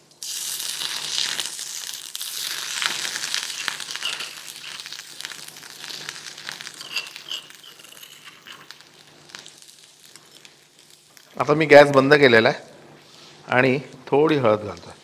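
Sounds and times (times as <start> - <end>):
paste sizzling in hot oil: 0.0 - 11.4.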